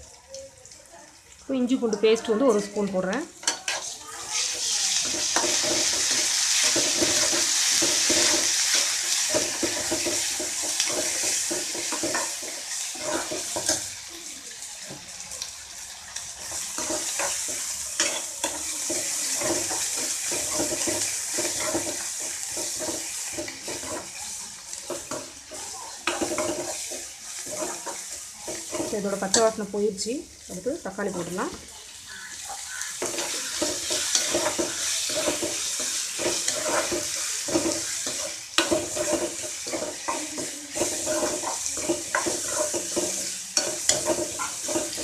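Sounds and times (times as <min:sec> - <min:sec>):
onions sizzling in hot oil: 0:00.0 - 0:45.0
ladle scraping and knocking pan: 0:05.0 - 0:13.8, 0:24.9 - 0:29.6, 0:33.0 - 0:45.0.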